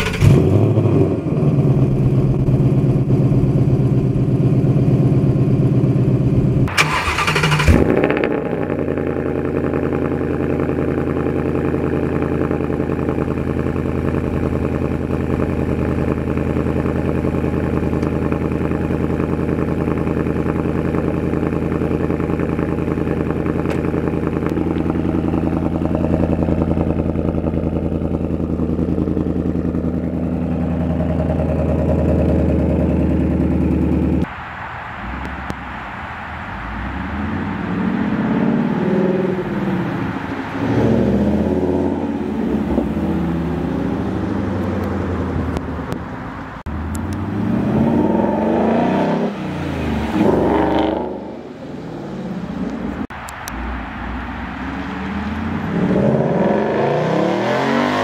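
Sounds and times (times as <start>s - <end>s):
engine cold start idle: 0.0s - 0.4s, 6.7s - 8.2s
car engine running: 0.0s - 58.0s.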